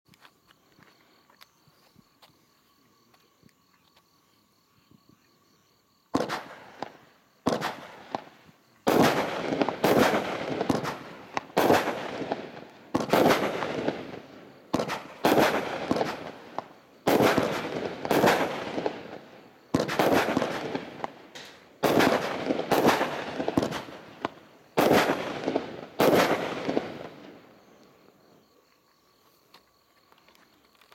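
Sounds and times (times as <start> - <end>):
firework bangs: 6.1 - 27.5.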